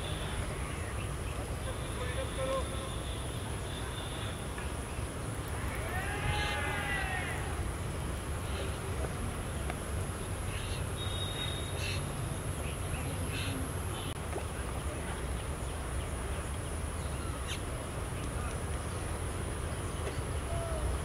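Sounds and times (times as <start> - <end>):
distant calls: 10.2 - 14.2.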